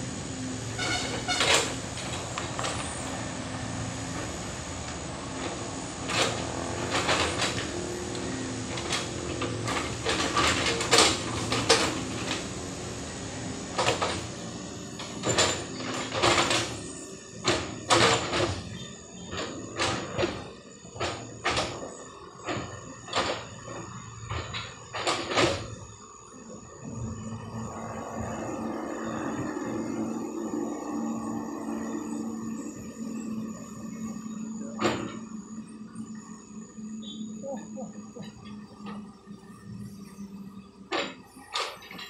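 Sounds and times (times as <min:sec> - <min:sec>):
excavator diesel engine humming: 0:00.0 - 0:42.0
sharp knocks and clanks: 0:15.0 - 0:21.9.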